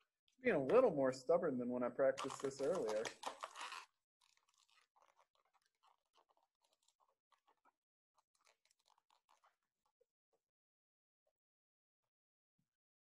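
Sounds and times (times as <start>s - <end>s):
faint crinkling and rustling: 2.2s - 10.1s.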